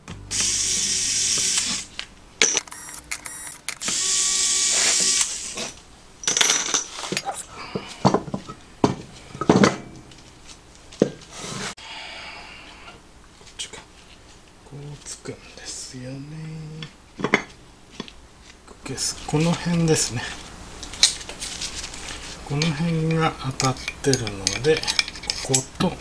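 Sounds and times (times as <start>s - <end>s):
metal parts clinking: 6.2s - 7.4s.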